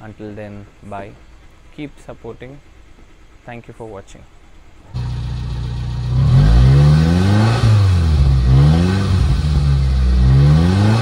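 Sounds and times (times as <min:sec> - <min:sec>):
car engine revving: 0:04.9 - 0:11.0.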